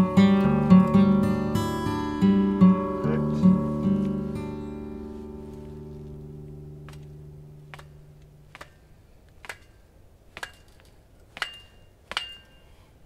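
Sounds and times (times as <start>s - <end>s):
acoustic guitar music: 0.0s - 9.0s
sharp taps on metal post: 6.8s - 12.6s.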